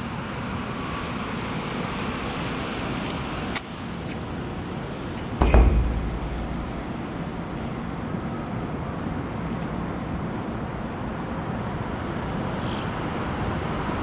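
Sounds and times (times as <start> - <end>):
road traffic hum: 0.0 - 14.0
loud crash with glassy chink: 5.4 - 7.3.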